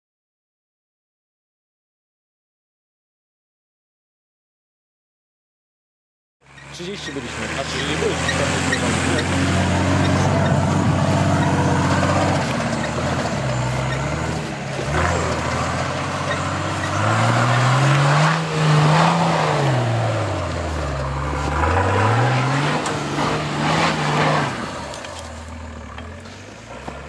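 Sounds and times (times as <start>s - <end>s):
diesel engine revving under load: 6.5s - 27.0s.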